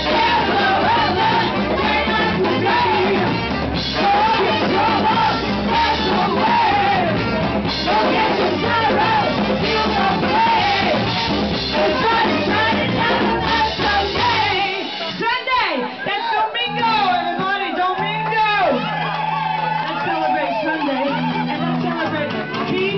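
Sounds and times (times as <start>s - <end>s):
electric guitar: 0.0s - 15.2s, 16.7s - 22.9s
saxophone: 0.0s - 15.2s
woman singing lead: 0.0s - 18.7s
drums: 0.0s - 22.9s.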